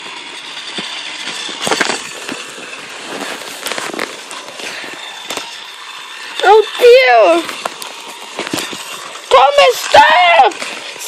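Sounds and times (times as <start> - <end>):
plastic toy trains clicking: 0.0 - 11.0.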